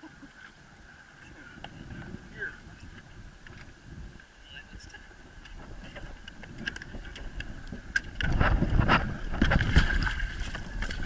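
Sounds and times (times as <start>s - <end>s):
wind on microphone: 0.0s - 11.0s.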